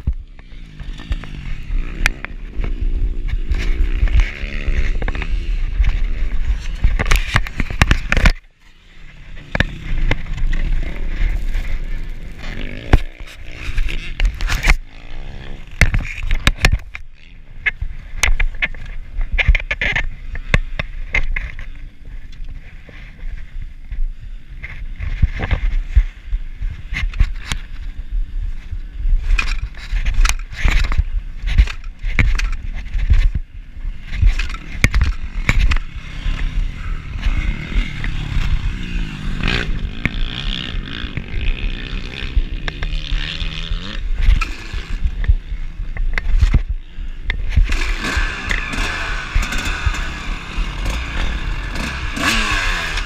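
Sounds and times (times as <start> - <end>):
dirt bike engine revving: 0.0 - 17.5, 30.4 - 53.0.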